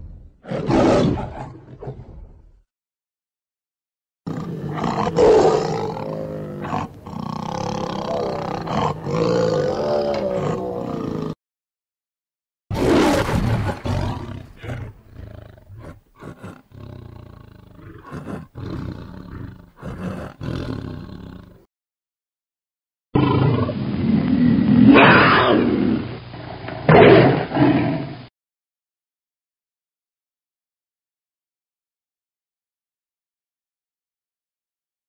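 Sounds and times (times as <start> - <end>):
tiger roaring and growling: 0.0 - 2.5, 4.3 - 11.4, 12.7 - 21.6, 23.2 - 28.2.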